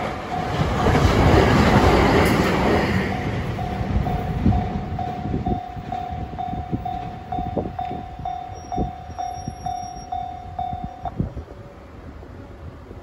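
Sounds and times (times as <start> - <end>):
level crossing warning bell: 0.0 - 1.9, 2.6 - 11.3
train wheels clattering over rail joints: 0.0 - 9.7.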